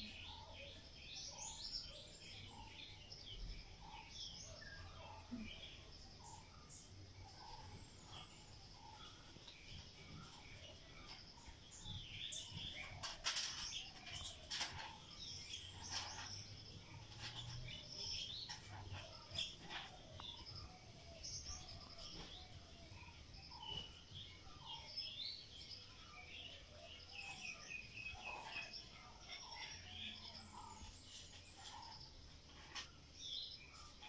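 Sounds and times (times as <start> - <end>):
small birds chirping: 0.0 - 34.0.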